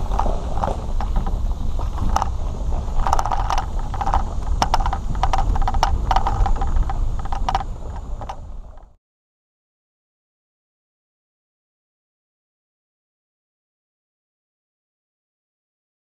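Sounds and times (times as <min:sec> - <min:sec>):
boat trailer rattling and clanking: 0:00.0 - 0:09.0
road noise rumble on gravel: 0:00.0 - 0:09.0.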